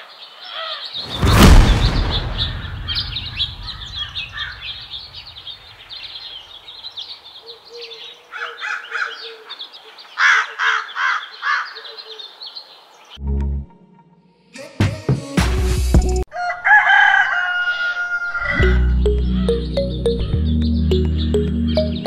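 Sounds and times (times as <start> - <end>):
small birds chirping: 1.8 - 13.2, 18.6 - 22.0
crow cawing: 4.0 - 4.7, 7.8 - 9.6, 10.2 - 12.3.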